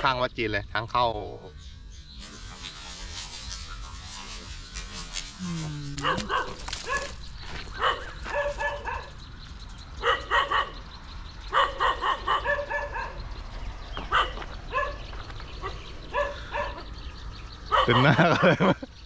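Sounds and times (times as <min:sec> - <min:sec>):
dog barking: 0:06.0 - 0:07.2, 0:07.8 - 0:09.2, 0:10.0 - 0:10.8, 0:11.5 - 0:13.2, 0:14.1 - 0:16.9, 0:17.7 - 0:18.4.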